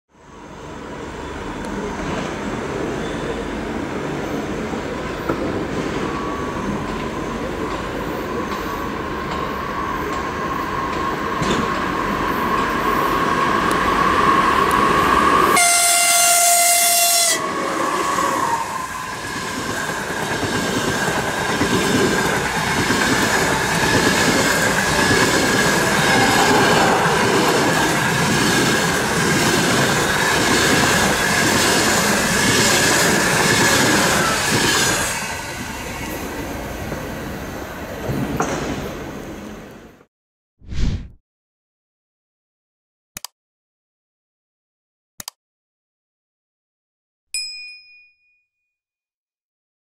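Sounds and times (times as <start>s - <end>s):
electric locomotive approaching: 0.2s - 40.1s
train horn: 15.4s - 18.8s, 25.9s - 27.4s.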